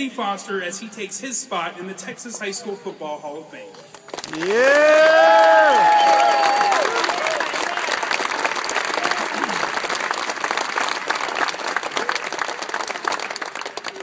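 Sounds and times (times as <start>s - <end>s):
audience applauding: 4.1s - 14.0s.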